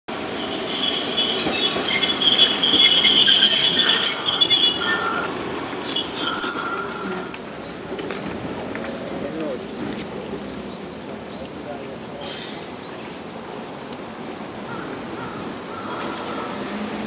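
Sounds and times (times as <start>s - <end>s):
tram wheels squealing on rails: 0.1s - 8.7s, 14.6s - 17.0s.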